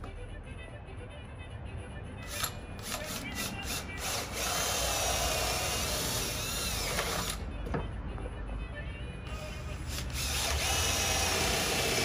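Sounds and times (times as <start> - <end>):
cordless drill boring into wood: 2.8 - 7.4, 9.3 - 12.0.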